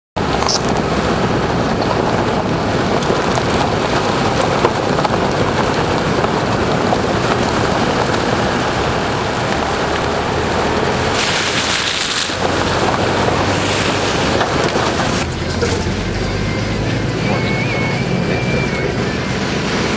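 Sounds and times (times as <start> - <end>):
wind on microphone: 0.2 - 15.8
vehicle on dirt track: 0.2 - 19.9.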